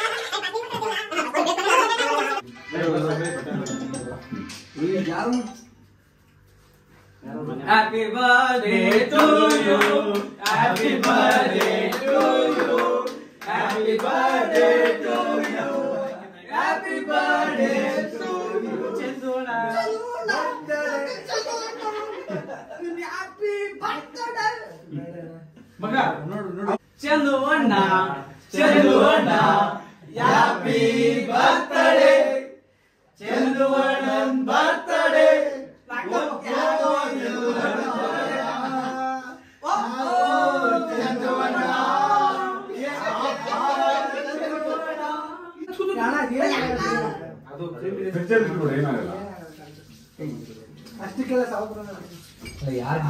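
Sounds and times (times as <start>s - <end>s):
voices singing together: 7.7s - 21.8s, 28.5s - 45.6s.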